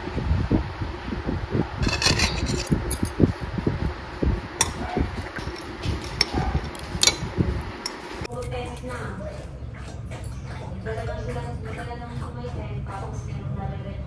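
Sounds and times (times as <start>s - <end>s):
chopsticks clinking on a plate: 5.4s - 8.0s.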